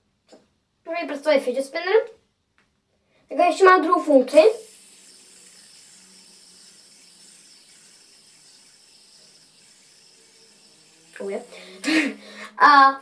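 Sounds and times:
fidget spinner whirring: 3.4 - 13.0.

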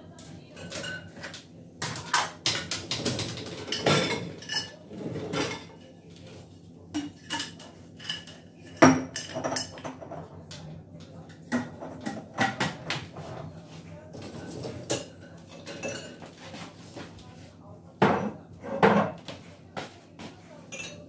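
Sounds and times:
dishes clinking and clattering: 0.2 - 17.2, 17.9 - 21.0.

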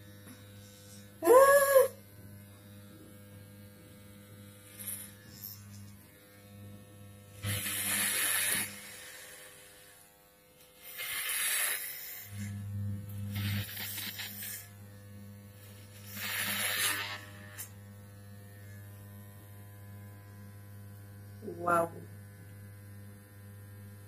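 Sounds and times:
electric hair clippers buzzing: 0.0 - 24.0
clipper blades cutting hair: 4.1 - 6.5, 13.3 - 14.8, 15.7 - 17.8.

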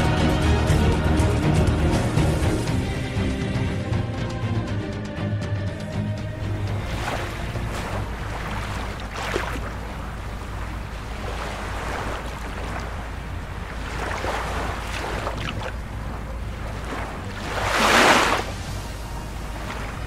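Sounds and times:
small waves washing on shore: 6.4 - 20.0
waves against boat hull: 6.6 - 20.0.

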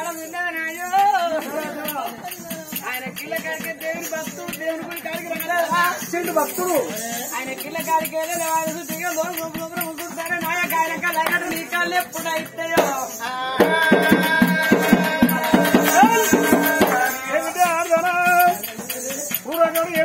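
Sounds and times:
jingling rattle: 0.0 - 20.0
folk singing: 11.2 - 20.0
barrel drum beating: 12.4 - 18.5.

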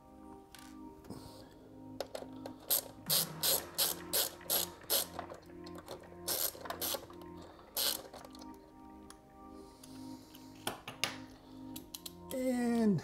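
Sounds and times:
screwdriver ratchet clicking: 2.7 - 7.1, 7.8 - 8.6.

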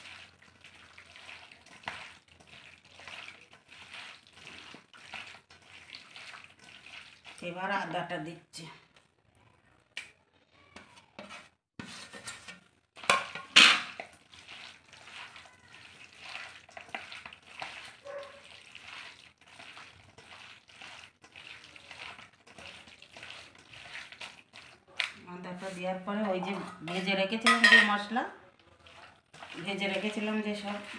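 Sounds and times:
plate scraping metal bowl: 10.9 - 14.0, 25.6 - 28.0
hand squishing raw meat: 14.2 - 25.2
plate knocking bowl: 27.5 - 28.0.

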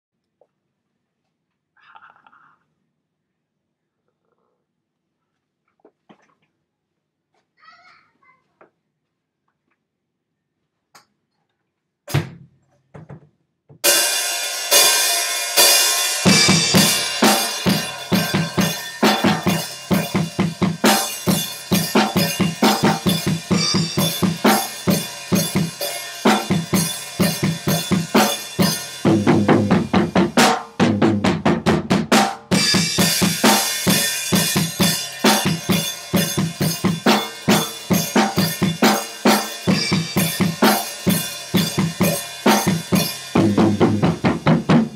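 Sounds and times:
drum kit playing: 13.8 - 44.9
cymbals: 13.9 - 30.8, 32.5 - 44.9
bass drum: 16.3 - 38.9, 39.7 - 44.9.

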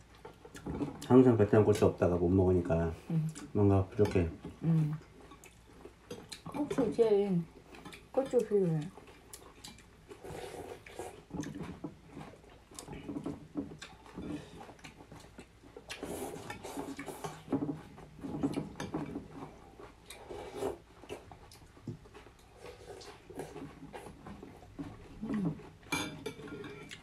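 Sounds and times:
chewing: 0.0 - 2.1, 3.2 - 27.0
slurping noodles: 10.2 - 11.3.

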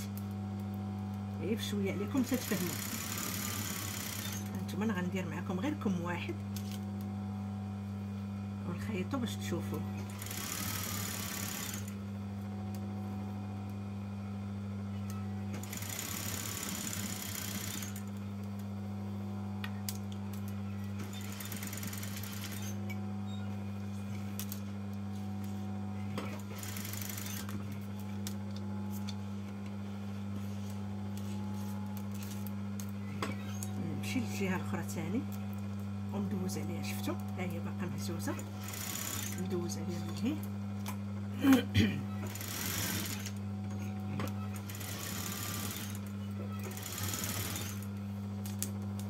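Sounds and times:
sewing machine motor hum: 1.4 - 4.9, 9.0 - 12.5, 15.1 - 18.7, 19.9 - 29.7, 30.4 - 40.3, 41.4 - 49.0
sewing machine stitching: 2.4 - 4.5, 15.6 - 18.0, 21.1 - 22.8, 26.4 - 27.5, 42.3 - 43.4, 44.6 - 47.9.

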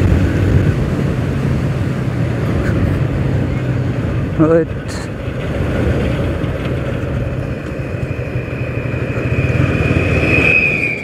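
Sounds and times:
wind noise on microphone: 0.0 - 4.3
passing truck whine: 0.0 - 11.0.

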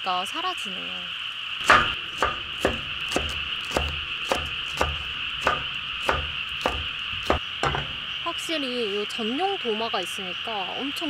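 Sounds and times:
insects trilling: 0.0 - 11.0
knife chopping on wooden board: 1.6 - 8.0.

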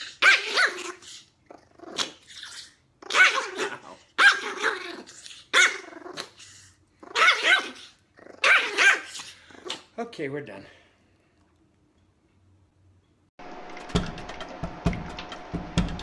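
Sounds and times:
small dog growling and yapping: 0.0 - 10.0.

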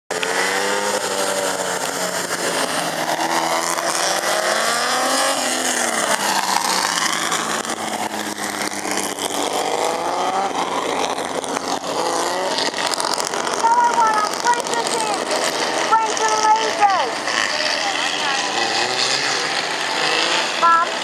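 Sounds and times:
racing cars driving past: 0.1 - 21.0.

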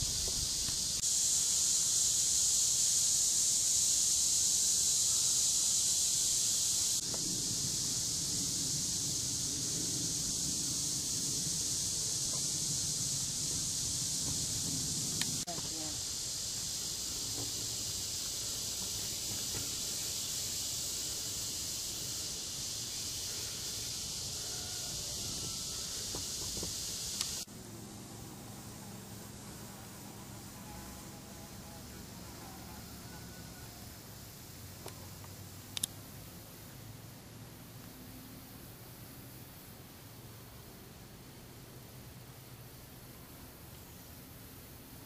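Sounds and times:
woodland ambience hiss: 0.0 - 45.0
faint low rumble: 7.0 - 15.6.

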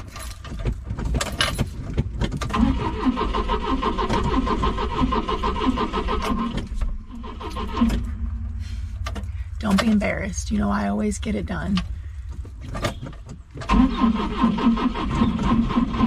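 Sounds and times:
car starter cranking engine: 0.0 - 10.7, 11.3 - 16.0.

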